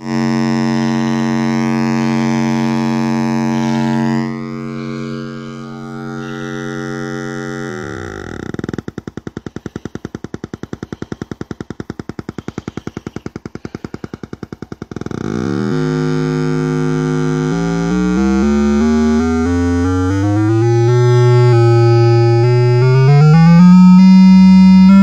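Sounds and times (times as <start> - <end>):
buzzy electronic tone: 0.0 - 14.2, 14.8 - 25.0
rapid rattle of pulses: 0.0 - 25.0.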